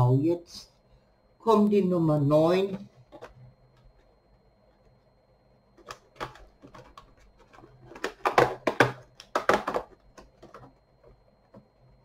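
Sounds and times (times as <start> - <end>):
cardboard crackling and knocking: 5.8 - 11.7.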